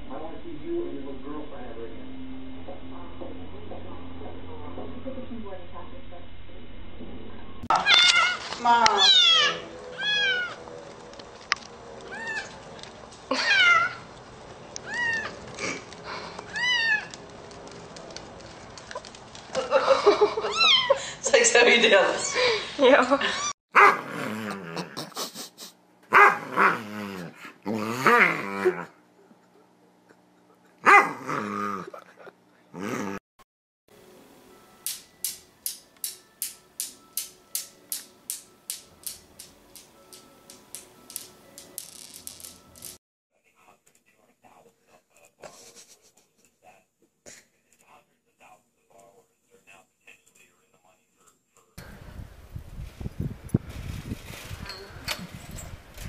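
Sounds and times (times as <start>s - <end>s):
metal balls clacking: 34.8s - 43.0s.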